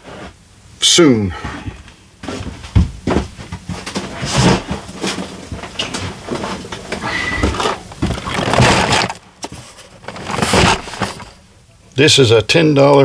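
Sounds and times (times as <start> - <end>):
plastic film crinkling: 3.9 - 11.5.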